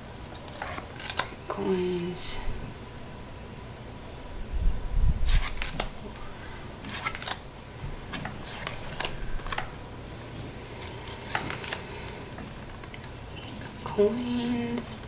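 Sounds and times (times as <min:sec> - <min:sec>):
cards snapping: 0:00.4 - 0:01.4, 0:05.3 - 0:06.0, 0:06.9 - 0:07.4, 0:08.1 - 0:09.8, 0:11.1 - 0:13.1.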